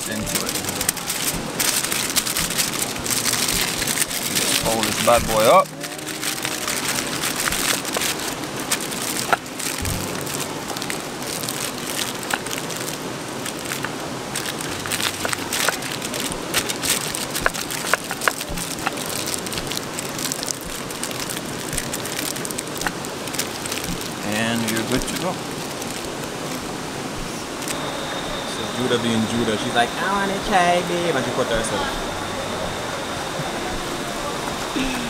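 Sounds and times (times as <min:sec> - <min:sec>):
small sharp crackles and pops: 0:00.0 - 0:26.7
river water rushing: 0:00.0 - 0:35.0.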